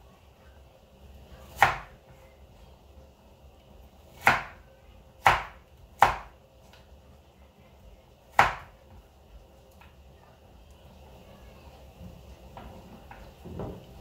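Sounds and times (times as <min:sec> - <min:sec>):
knife chopping on wooden board: 0:05.2 - 0:06.3.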